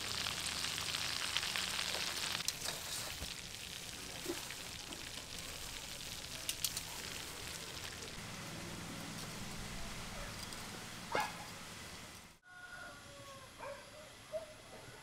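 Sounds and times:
frying oil sizzling: 0.0 - 8.5.

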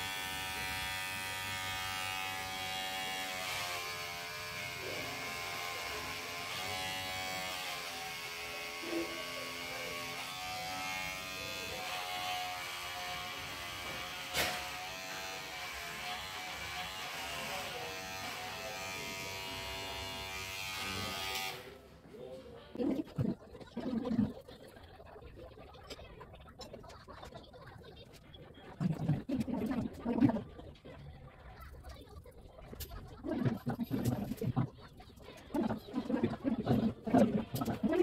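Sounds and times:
electric hair clipper buzzing: 0.0 - 21.8.

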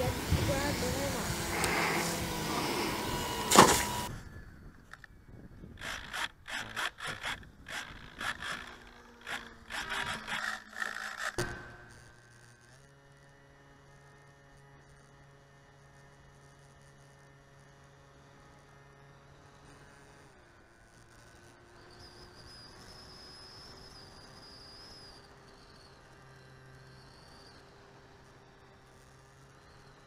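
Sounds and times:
faint steady tonal hum: 0.0 - 30.0.

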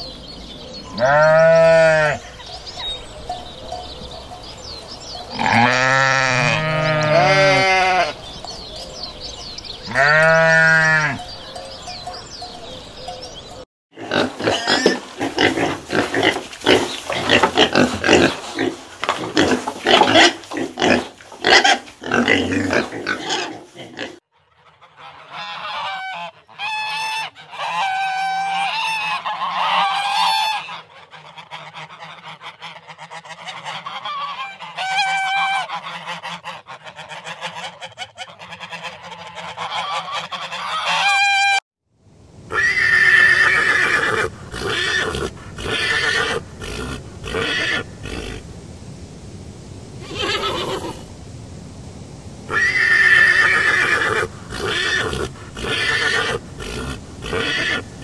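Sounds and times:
piglets grunting and squealing: 0.9 - 2.2, 5.3 - 8.1, 14.0 - 24.2, 42.5 - 48.4, 52.5 - 57.9
waterfowl quacking and honking: 19.1 - 41.6
horse whinnying: 42.5 - 48.4, 50.0 - 51.1, 52.5 - 57.8.

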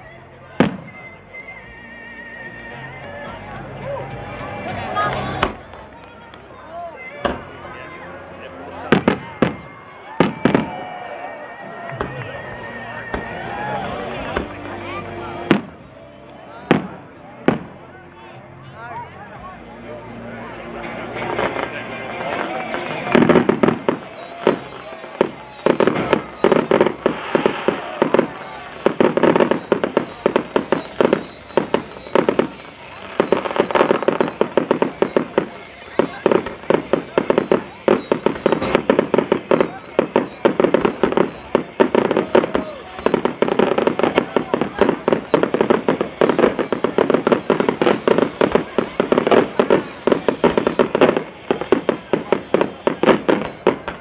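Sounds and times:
fireworks bangs and crackling: 0.0 - 1.7, 2.4 - 18.7, 20.1 - 54.0
high whistle sliding down: 22.1 - 54.0.

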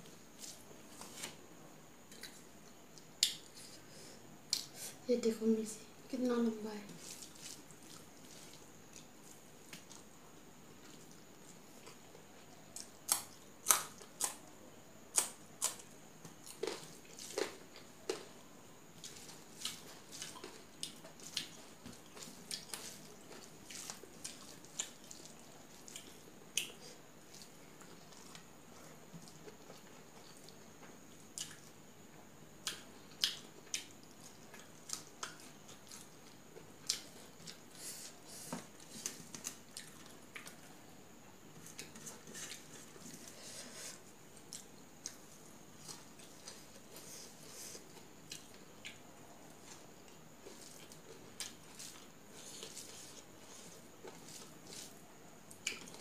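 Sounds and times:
crunching bites: 12.8 - 14.4
wet chewing: 19.0 - 28.4.

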